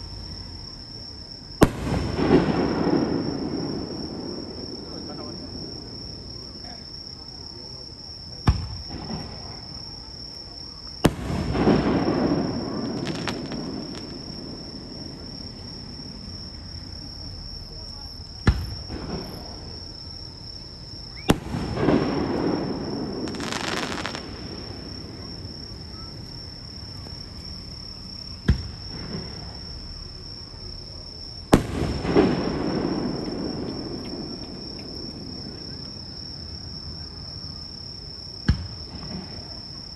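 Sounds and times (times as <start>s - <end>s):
fireworks rumble and crackle: 0.0s - 39.9s
insect chirring: 0.0s - 39.9s
firework bangs: 1.6s - 6.5s, 8.4s - 9.7s, 11.0s - 19.9s, 21.1s - 27.4s, 28.4s - 29.8s, 31.4s - 36.1s, 38.4s - 39.6s.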